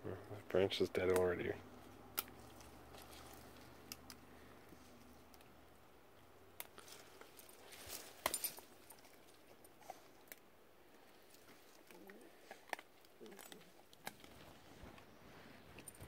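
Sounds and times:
dogs gnawing bark and branches: 1.0 - 5.6, 6.2 - 16.0
twigs snapping: 2.1 - 4.2, 6.6 - 9.4.

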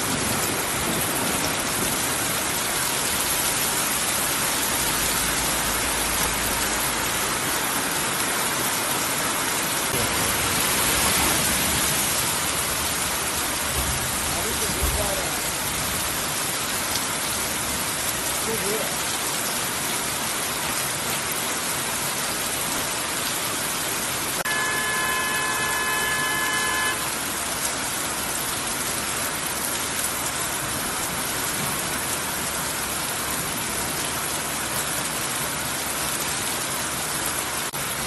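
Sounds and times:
heavy rain on street: 0.0 - 38.0
vehicle horn: 24.4 - 27.4.

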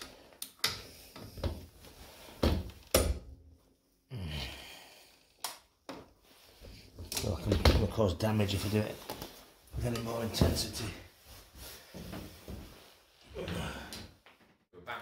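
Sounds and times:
person sighing with effort: 4.1 - 5.3, 13.3 - 14.2.

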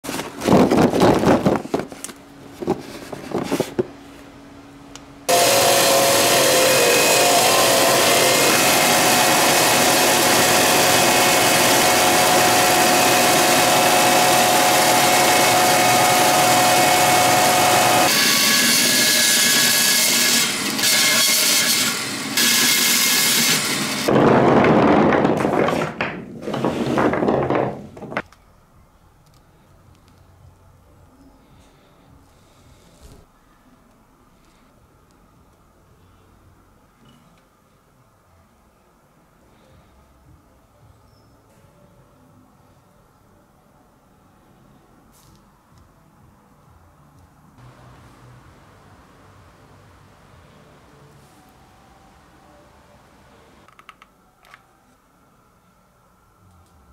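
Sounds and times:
power tool grinding: 5.3 - 24.2
knocks and rattles: 24.1 - 28.3.

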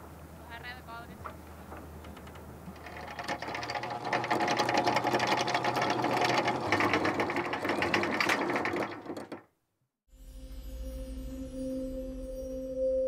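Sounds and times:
anchor chain clattering: 2.0 - 9.5.

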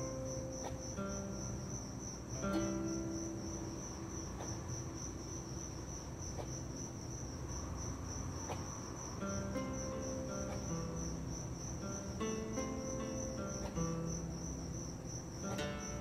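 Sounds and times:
background music of held notes: 0.0 - 3.9, 9.2 - 16.0
crickets chirping: 0.0 - 16.0.

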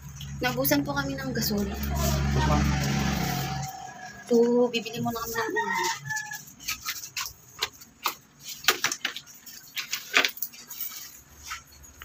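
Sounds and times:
small objects clicking and rustling: 5.2 - 12.0.

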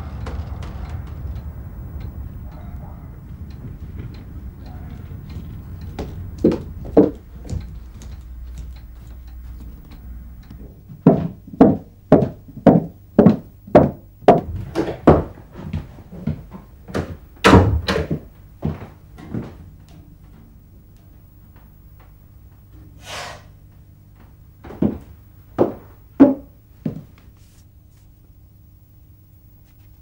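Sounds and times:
hard knocks: 0.0 - 7.7, 11.0 - 15.4, 16.5 - 18.3, 24.7 - 26.6.

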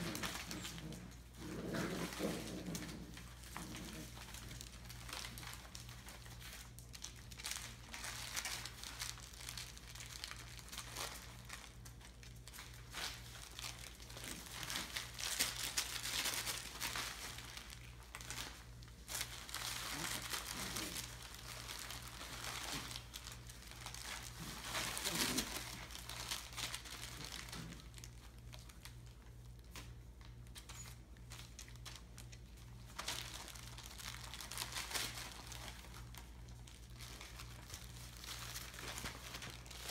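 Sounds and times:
paper crinkling and rustling: 0.0 - 39.9.

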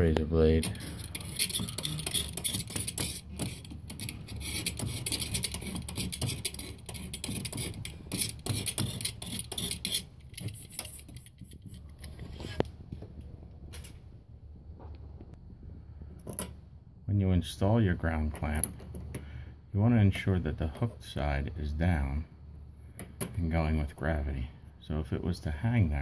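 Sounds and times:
razor blade scraping metal pipe: 0.5 - 12.6.

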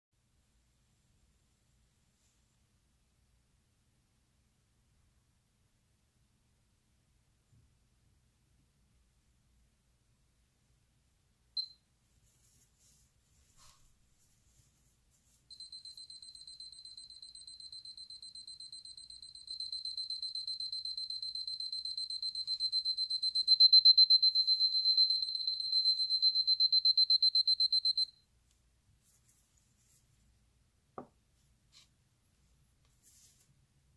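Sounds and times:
wristwatch alarm beeping: 15.5 - 28.2.

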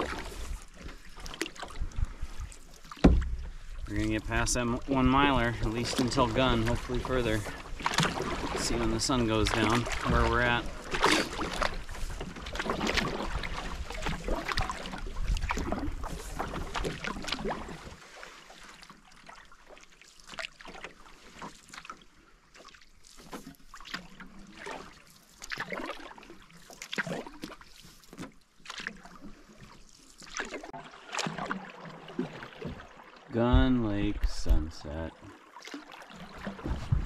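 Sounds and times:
paddle splashing water: 0.0 - 37.0
wind rumble on microphone: 36.6 - 37.0.

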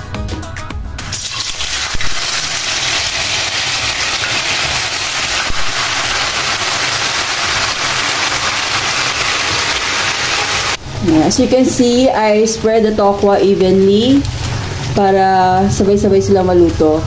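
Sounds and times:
tofu sizzling in hot oil: 1.2 - 10.8.

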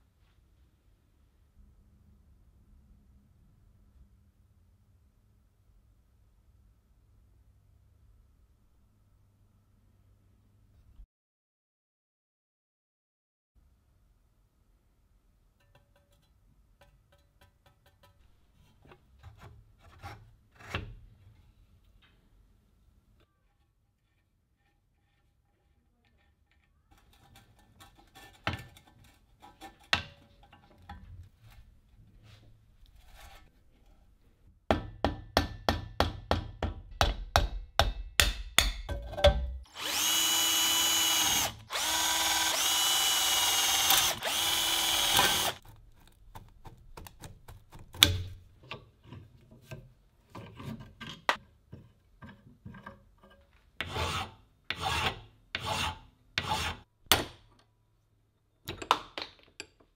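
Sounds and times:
electric drill drilling into metal: 39.7 - 45.6.

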